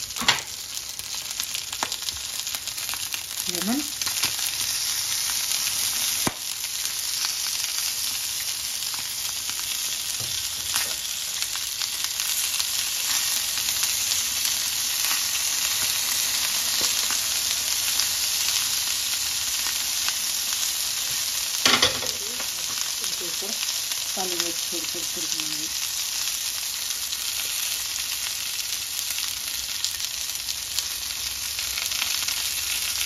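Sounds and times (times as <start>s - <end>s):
chicken frying in oil: 0.0s - 33.0s.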